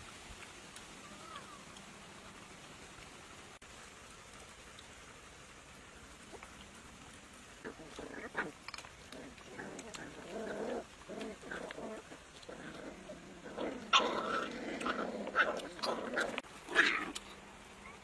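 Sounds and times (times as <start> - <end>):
puppies growling: 6.1 - 18.0.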